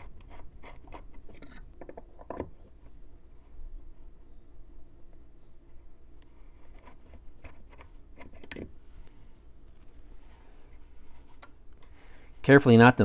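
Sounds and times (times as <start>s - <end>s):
drill bit clicking and scraping: 0.0s - 3.0s
low steady hum: 0.0s - 13.0s.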